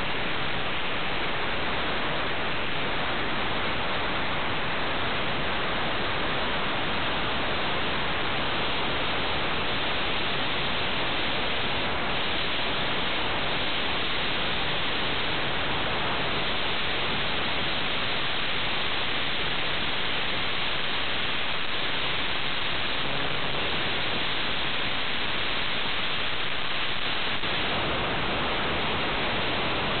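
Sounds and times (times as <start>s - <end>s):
static hiss: 0.0s - 30.0s.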